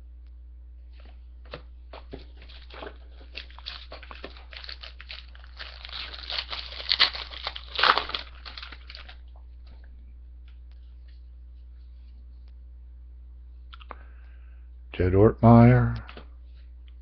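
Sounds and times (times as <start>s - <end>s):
card pack wrapper crinkling: 2.0s - 9.3s.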